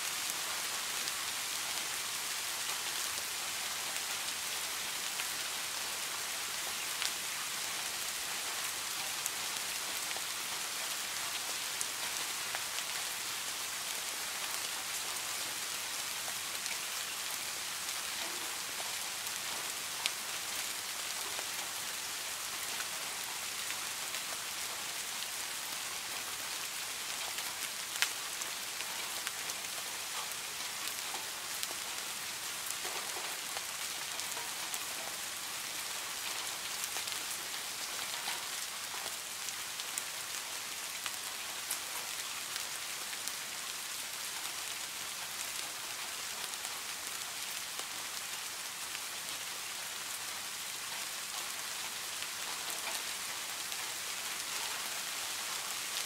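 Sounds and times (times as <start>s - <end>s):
rain falling on a pond: 0.0s - 56.0s.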